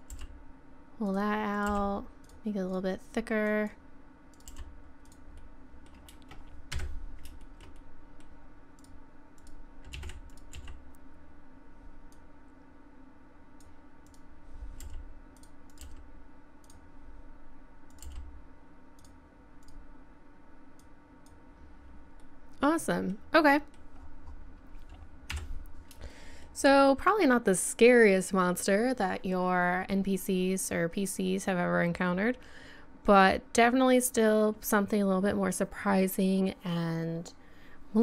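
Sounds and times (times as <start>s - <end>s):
faint steady hum: 0.0s - 38.0s
keyboard keys clicking: 4.3s - 5.2s, 8.8s - 10.8s, 17.9s - 18.3s.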